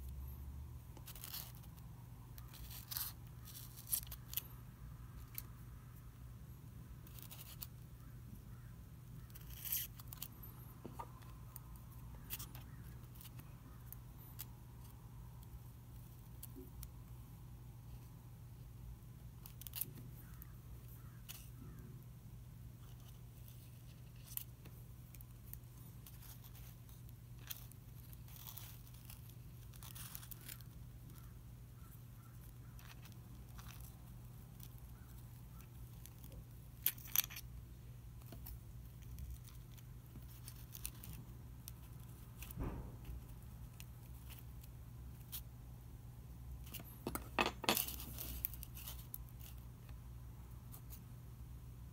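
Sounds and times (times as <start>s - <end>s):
forceps scraping and tapping: 9.3s - 13.4s, 46.6s - 50.0s.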